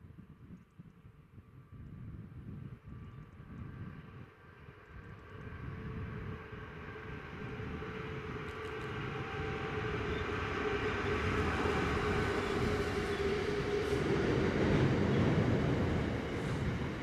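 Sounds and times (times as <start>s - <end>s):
diesel locomotive engine under load: 4.5s - 17.0s.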